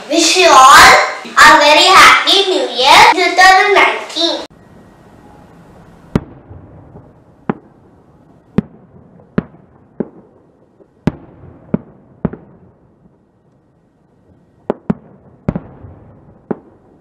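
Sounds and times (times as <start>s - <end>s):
fireworks bangs: 6.0s - 13.4s, 14.1s - 17.0s.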